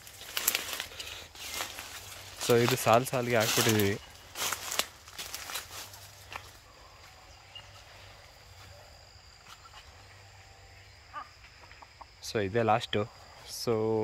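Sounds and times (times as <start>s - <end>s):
rustling leaves: 0.0s - 10.3s
high insect drone: 0.0s - 14.0s.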